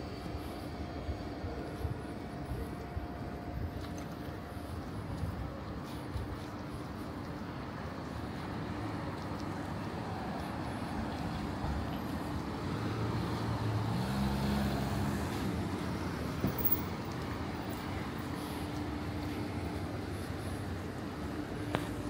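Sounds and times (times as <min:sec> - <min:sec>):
road traffic passing: 0:00.0 - 0:22.0
vehicle engine passing: 0:10.0 - 0:20.8.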